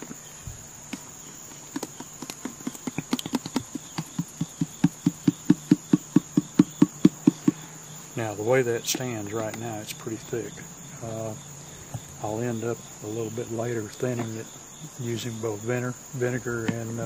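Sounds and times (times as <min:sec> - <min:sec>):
crickets chirring: 0:00.0 - 0:17.0
ketchup knocking in shaken bottle: 0:00.9 - 0:07.6.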